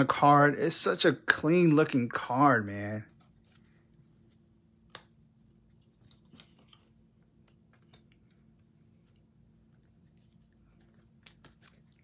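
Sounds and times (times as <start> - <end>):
card rustling: 2.8 - 12.0.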